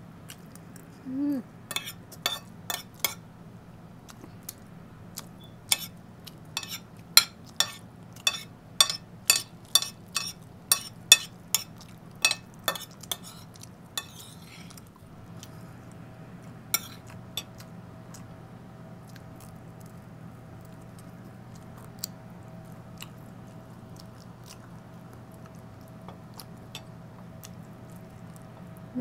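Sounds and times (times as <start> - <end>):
steady low hum: 0.0 - 29.0
close-up chewing: 0.2 - 1.0, 4.0 - 8.4, 9.6 - 28.9
cutlery clinking on a plate: 1.7 - 3.2, 6.6 - 13.4, 14.0 - 14.4.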